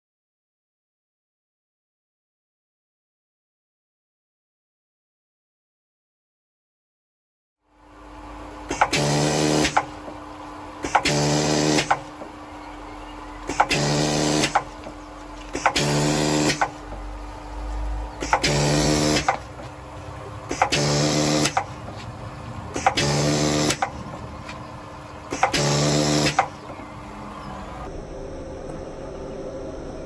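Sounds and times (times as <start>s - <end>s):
pneumatic hiss and buzzing hum: 7.8s - 27.9s.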